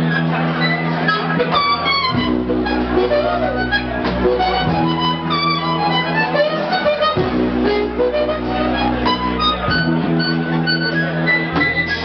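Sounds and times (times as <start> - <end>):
amplified harmonica: 0.0 - 12.0
drums: 0.0 - 12.0
electric guitar: 0.0 - 12.0
sustained low notes: 0.0 - 12.0.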